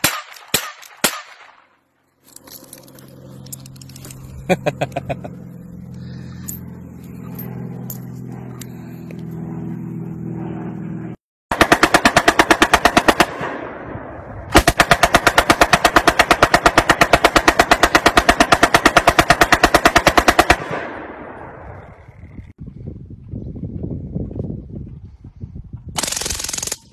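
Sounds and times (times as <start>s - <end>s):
machine gun firing bursts: 11.5s - 13.7s, 14.5s - 21.1s, 26.0s - 26.9s.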